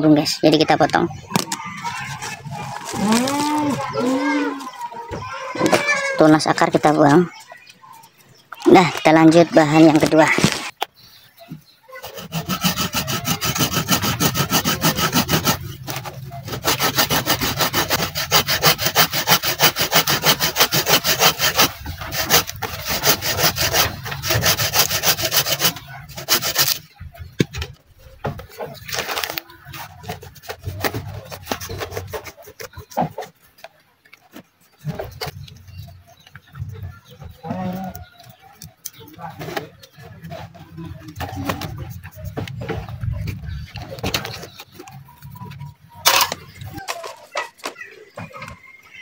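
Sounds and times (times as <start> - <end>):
hand saw cutting wood: 11.9 - 26.8
knife scraping wood: 11.9 - 27.4, 28.3 - 33.3.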